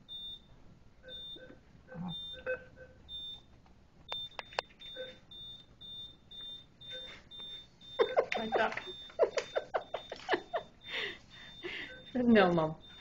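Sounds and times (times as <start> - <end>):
atm beeping: 4.1 - 13.0.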